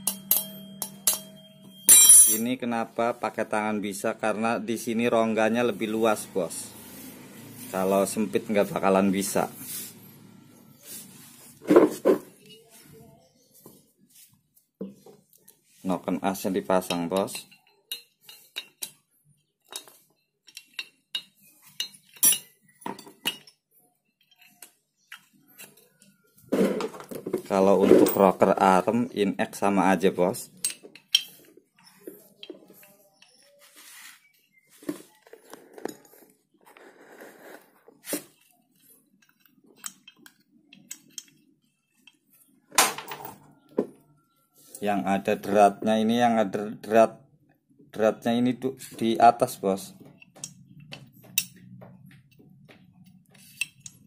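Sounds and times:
metal parts clicking: 19.7s - 23.6s, 39.2s - 41.4s, 53.4s - 54.0s.

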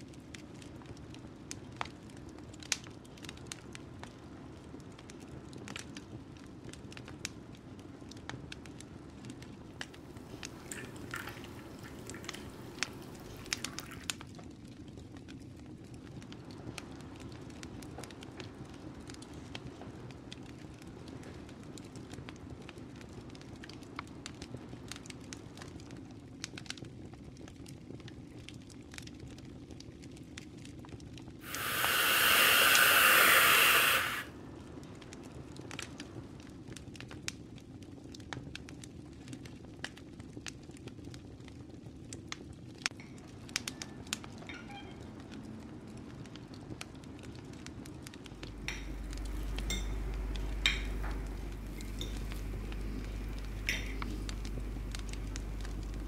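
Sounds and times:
loud steady hiss: 31.4s - 34.3s, 48.3s - 56.0s
low hum: 48.3s - 56.0s.

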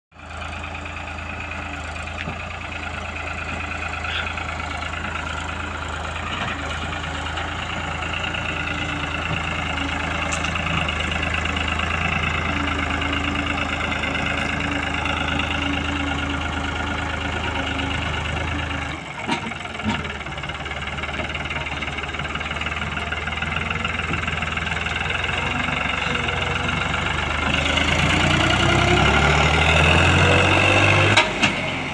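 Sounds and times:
tractor diesel engine running: 0.1s - 31.9s.

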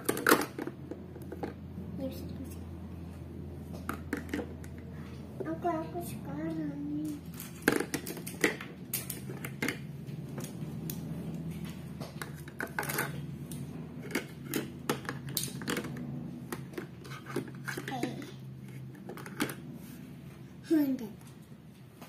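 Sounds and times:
plastic toy dishes clattering: 0.0s - 1.6s, 3.8s - 4.8s, 7.0s - 9.8s, 12.2s - 13.2s, 14.0s - 19.6s.

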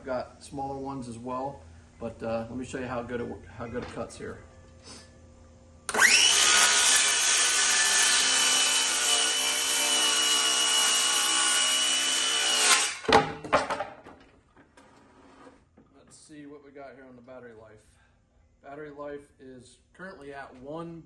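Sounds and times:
circular saw cutting wood: 5.9s - 13.0s
saw blade winding down: 5.9s - 13.0s
sharp knocks: 13.0s - 14.3s.

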